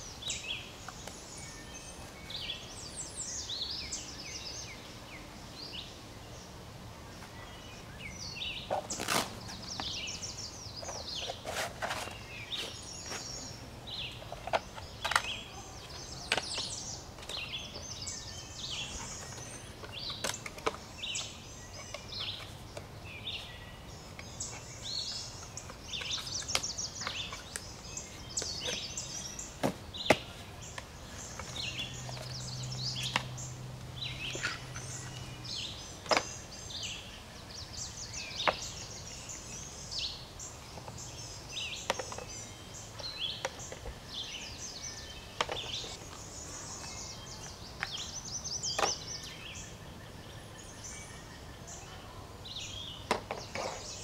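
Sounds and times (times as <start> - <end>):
songbirds chirping and singing: 0.0 - 54.0.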